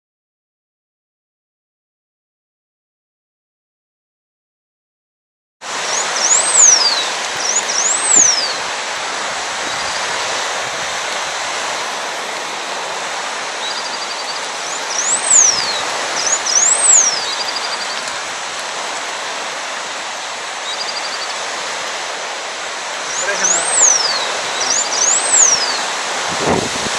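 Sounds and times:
background hiss: 5.7 - 26.9
finch singing: 5.8 - 8.7, 13.5 - 18.2, 20.6 - 21.4, 23.0 - 26.0.

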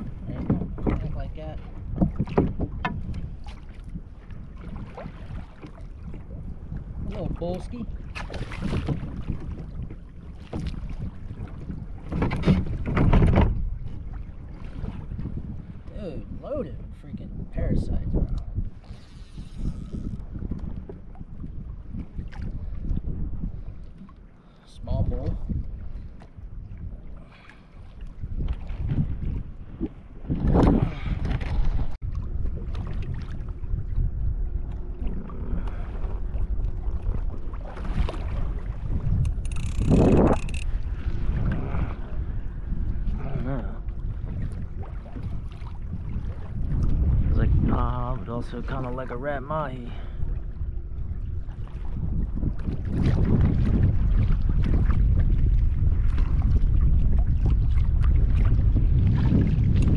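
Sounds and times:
water lapping against hull: 0.0 - 59.9
wind buffeting microphone: 0.0 - 59.9.

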